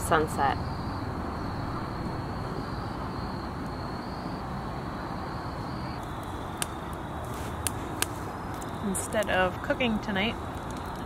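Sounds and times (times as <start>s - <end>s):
low background rumble: 0.0s - 6.9s
crickets trilling: 0.0s - 11.0s.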